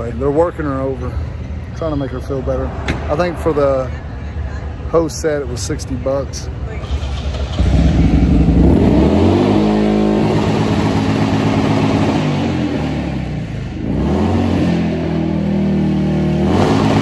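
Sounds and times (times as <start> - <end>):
motorcycle engine revving: 6.8 - 17.0.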